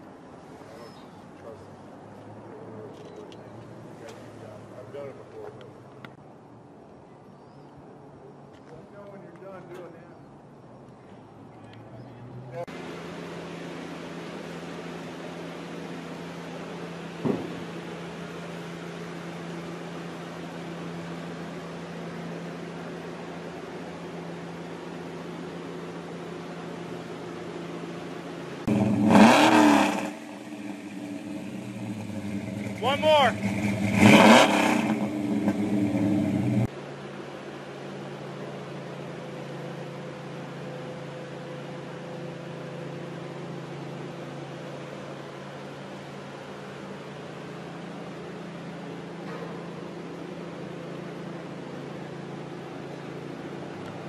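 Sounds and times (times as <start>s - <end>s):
short bump: 17.2s - 17.7s.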